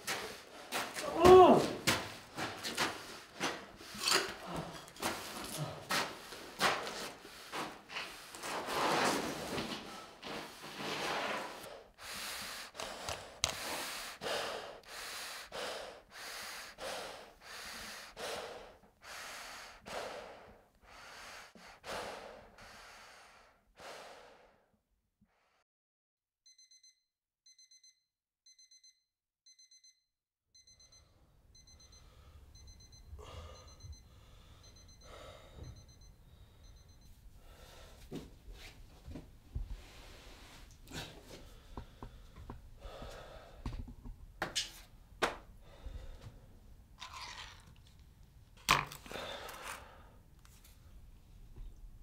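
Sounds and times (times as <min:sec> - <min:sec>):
gasping breaths through a respirator: 0:11.4 - 0:24.7, 0:39.8 - 0:43.8, 0:49.0 - 0:50.2
alarm clock beeping: 0:26.5 - 0:37.3.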